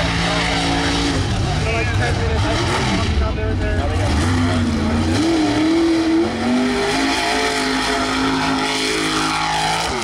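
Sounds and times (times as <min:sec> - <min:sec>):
heavy low rumble: 0:00.0 - 0:06.5
truck engine revving: 0:00.0 - 0:10.0.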